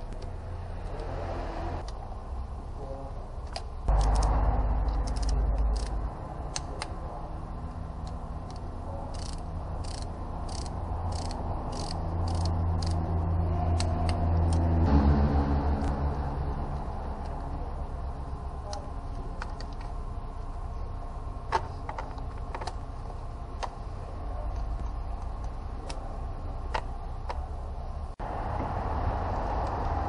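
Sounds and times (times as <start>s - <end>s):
steady low hum: 0.0s - 30.0s
ratchet wrench clicking: 3.5s - 6.9s, 8.0s - 14.7s.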